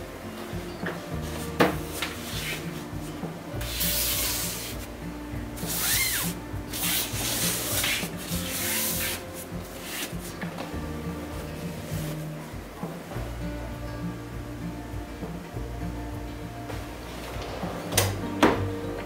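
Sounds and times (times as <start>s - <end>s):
soft background music: 0.0s - 19.0s
fabric boxes scraping in drawer: 6.8s - 10.2s.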